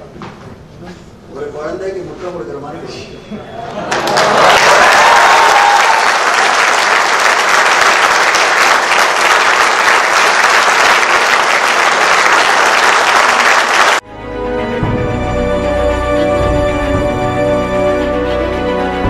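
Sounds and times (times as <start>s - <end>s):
audience applauding: 3.6s - 14.0s
music: 14.0s - 19.0s.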